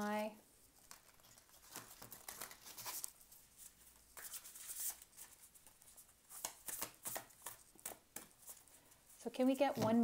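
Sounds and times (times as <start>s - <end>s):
cards being shuffled: 0.8s - 8.8s.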